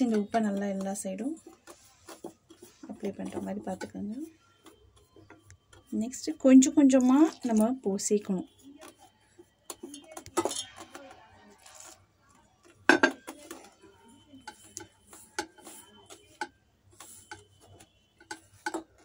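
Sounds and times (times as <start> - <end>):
fingers tapping steel bowl: 12.8 - 19.0
knock on bowl: 12.9 - 13.3.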